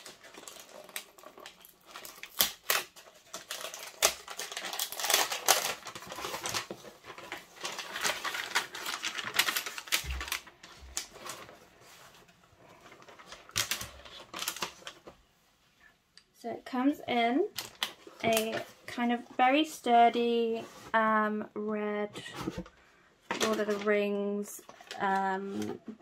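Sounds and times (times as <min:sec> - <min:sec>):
paper packaging tearing: 0:00.0 - 0:11.5, 0:13.1 - 0:15.0.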